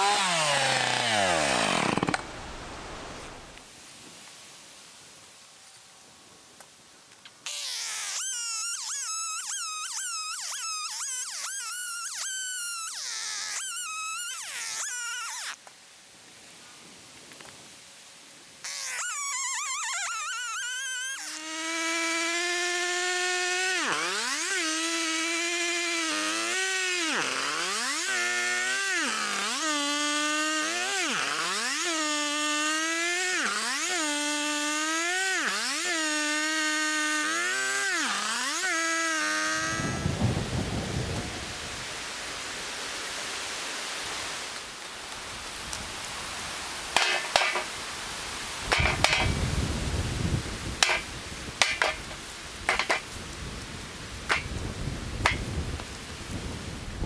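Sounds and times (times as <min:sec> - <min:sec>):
sharp cracks: 0:00.0 - 0:02.5, 0:50.8 - 0:53.2, 0:54.3 - 0:54.6
chainsaw cutting logs: 0:00.0 - 0:03.6, 0:07.5 - 0:15.6, 0:18.6 - 0:40.4, 0:46.8 - 0:47.8, 0:48.6 - 0:49.7, 0:50.3 - 0:53.2, 0:54.2 - 0:55.9.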